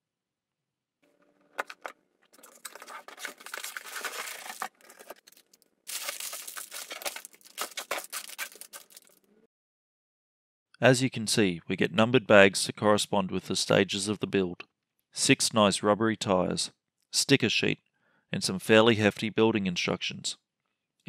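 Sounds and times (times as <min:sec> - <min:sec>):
plastic bags crinkling: 0:01.6 - 0:09.3.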